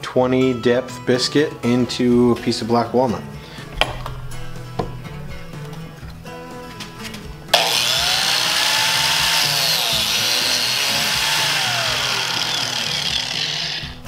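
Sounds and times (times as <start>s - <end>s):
biscuit joiner motor running: 7.5s - 14.0s
blade cutting into wood: 7.5s - 14.0s.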